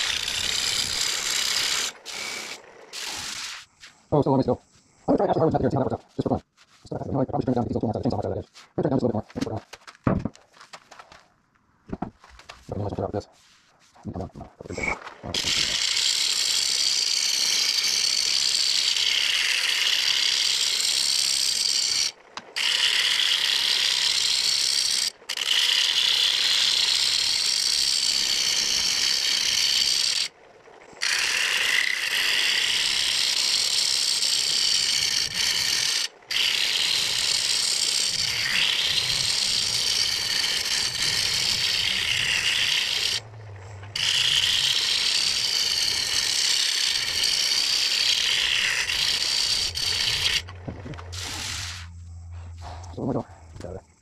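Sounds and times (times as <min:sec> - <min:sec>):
lathe tool scraping wood: 0:00.0 - 0:09.6, 0:12.4 - 0:52.8.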